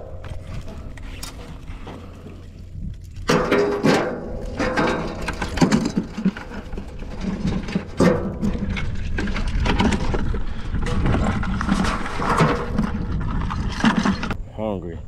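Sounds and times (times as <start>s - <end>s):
wind rumble on microphone: 0.0s - 15.0s
scraping and knocking handling noises: 3.2s - 14.4s.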